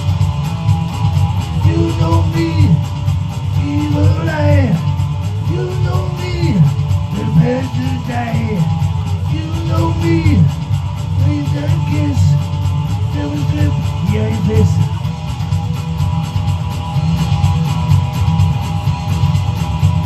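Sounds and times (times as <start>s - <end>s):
electric guitar strumming: 0.0s - 20.0s
man singing: 1.6s - 2.9s, 3.6s - 4.8s, 5.4s - 10.6s, 11.2s - 15.0s.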